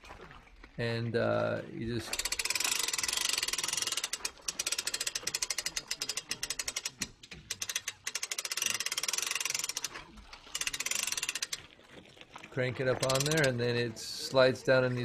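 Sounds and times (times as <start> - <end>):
hand crank ratchet clicking: 2.0 - 11.7, 13.0 - 13.6.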